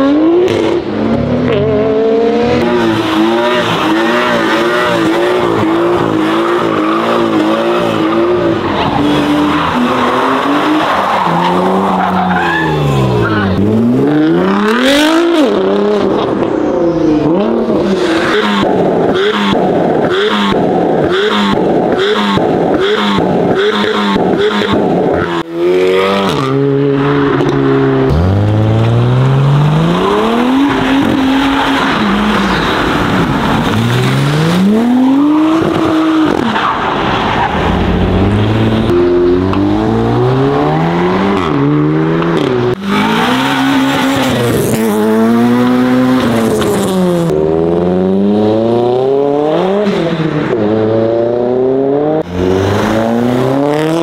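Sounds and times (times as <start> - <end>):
engines revving hard: 0.0 - 16.5, 17.2 - 54.0.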